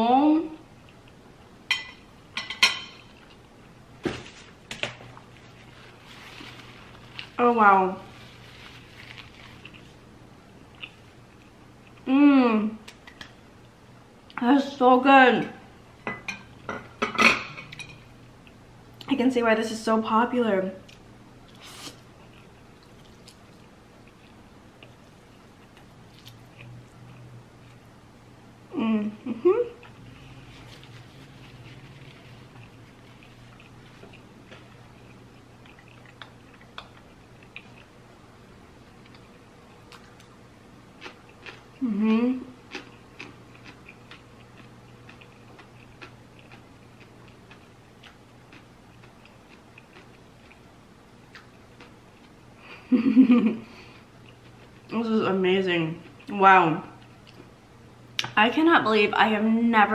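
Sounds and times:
low steady hum: 0.0s - 59.9s
chewing noodles: 29.8s - 37.9s, 41.0s - 41.8s, 42.7s - 50.7s.

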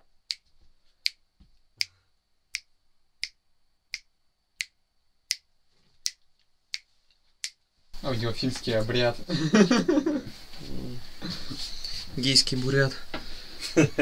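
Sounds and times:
fingers snapping: 1.8s - 2.0s.

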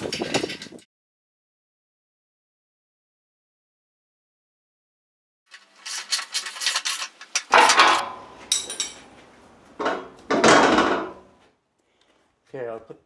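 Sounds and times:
metal hardware clattering: 7.4s - 9.1s.

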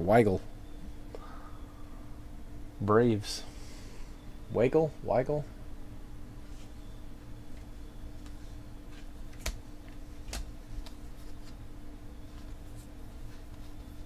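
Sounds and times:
steady low hum: 0.0s - 14.0s
cards clicking and flicking: 9.3s - 11.6s.

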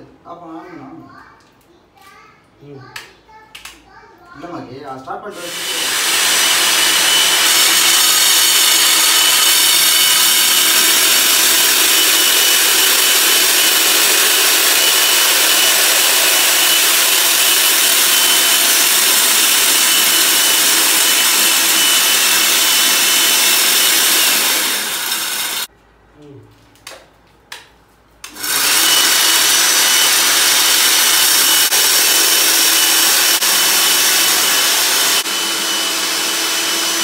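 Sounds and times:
core drill grinding concrete: 5.4s - 25.7s, 28.3s - 37.0s.

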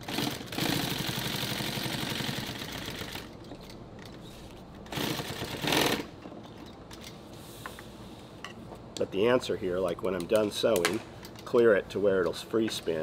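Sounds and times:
heavy-duty sewing machine stitching: 0.0s - 3.3s, 4.9s - 6.1s.

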